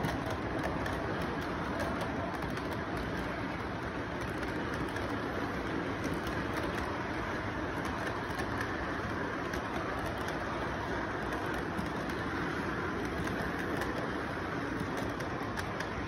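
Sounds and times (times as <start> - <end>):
light irregular clicking: 0.0 - 16.0
model train rumbling on track: 0.0 - 16.0.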